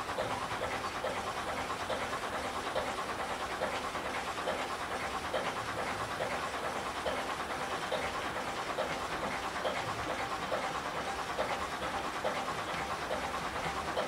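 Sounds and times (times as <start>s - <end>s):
steam locomotive chuffing: 0.0s - 14.0s.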